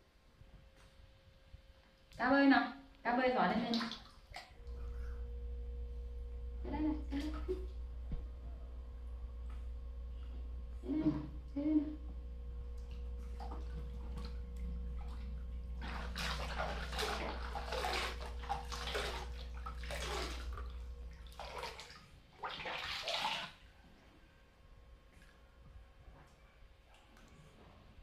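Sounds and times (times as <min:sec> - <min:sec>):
water splashing in a pool: 0:03.5 - 0:04.6, 0:12.7 - 0:24.1.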